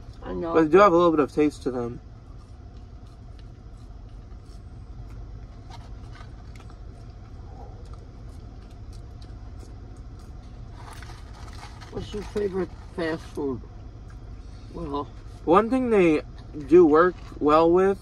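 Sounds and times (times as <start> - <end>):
car cabin hum: 0.0 - 18.0
fries being chewed: 1.3 - 18.0.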